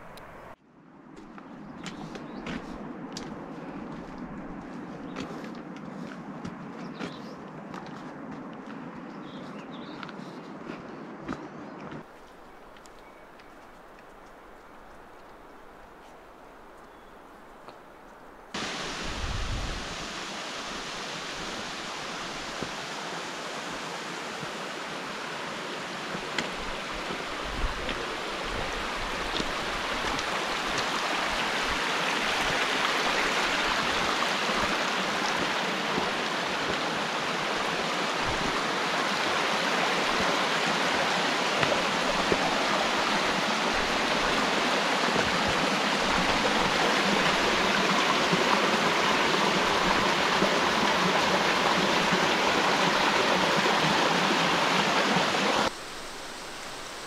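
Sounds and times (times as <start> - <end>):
meltwater rushing: 18.5 - 57.0.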